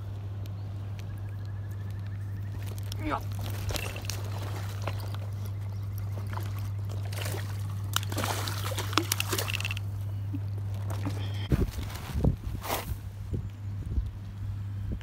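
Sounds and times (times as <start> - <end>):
steady low hum: 0.0 - 15.0
water sloshing and trickling: 2.4 - 12.3.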